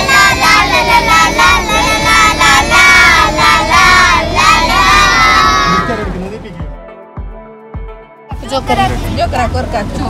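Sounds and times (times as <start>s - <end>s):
girls singing together: 0.0s - 5.9s
low road rumble: 0.0s - 6.6s, 8.3s - 10.0s.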